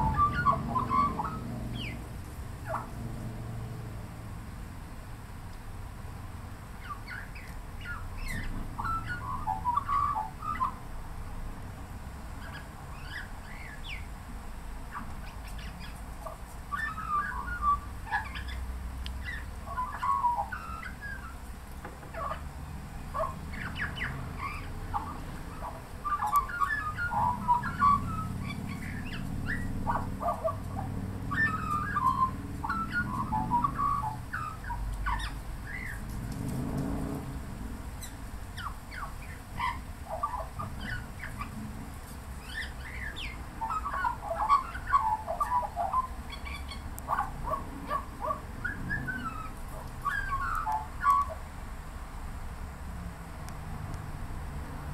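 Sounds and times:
magpie warbling: 0.0s - 2.0s, 6.8s - 10.8s, 19.2s - 21.4s, 23.1s - 36.0s, 42.4s - 51.4s.

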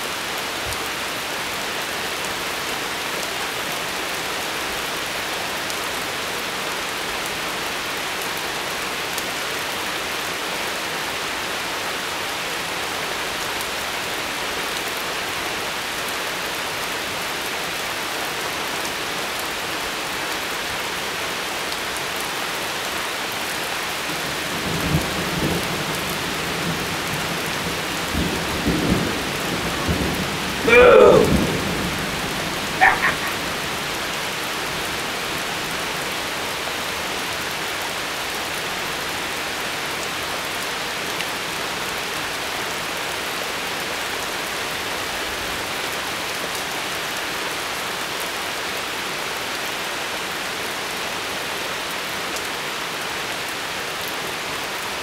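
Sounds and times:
rain hissing: 24.0s - 36.9s
thunder rumbling: 28.2s - 33.9s.

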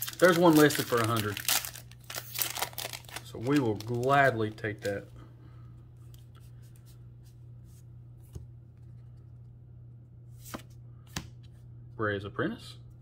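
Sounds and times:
trading cards handled: 0.0s - 5.1s
steady low hum: 0.0s - 13.0s.

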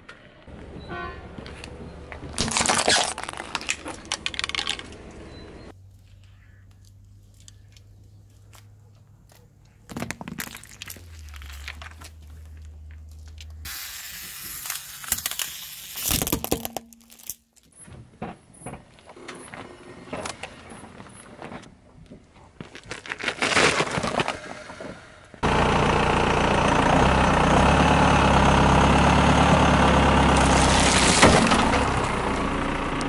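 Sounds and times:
tyre crushing small objects: 2.3s - 5.1s, 9.3s - 17.8s, 21.0s - 24.8s, 30.4s - 31.8s
low engine hum: 24.5s - 33.0s.

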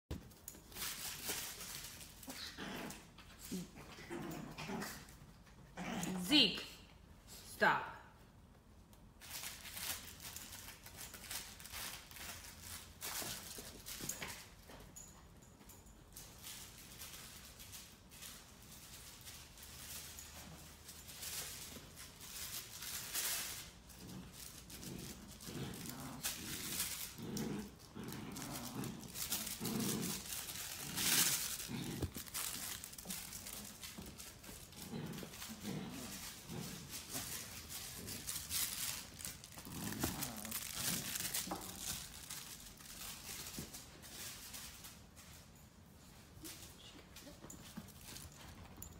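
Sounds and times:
puppies scratching and rustling toys: 0.1s - 6.4s, 8.3s - 48.9s.

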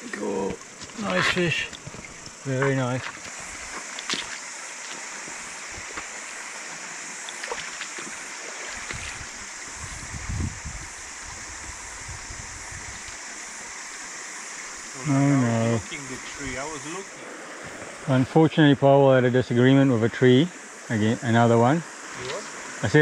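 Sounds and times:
stream running over stones: 0.0s - 23.0s
wind rumble on microphone: 8.8s - 13.2s.

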